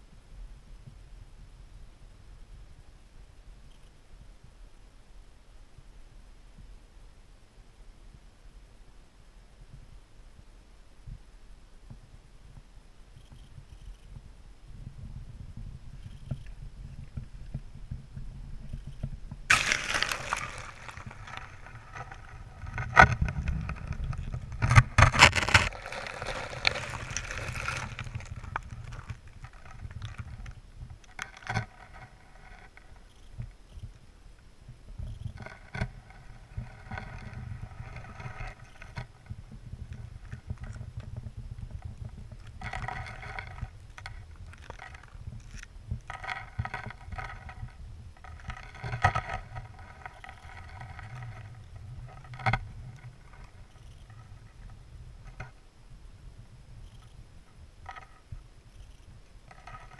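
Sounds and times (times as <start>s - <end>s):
low water rumble: 14.1s - 33.6s, 34.2s - 59.9s
slushy seawater sloshing: 19.5s - 22.8s, 25.2s - 29.1s.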